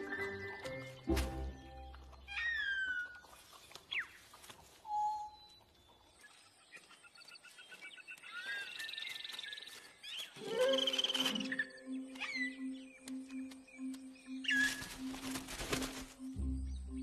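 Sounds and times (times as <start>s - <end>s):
falling whistle-like call: 10.4s - 11.6s.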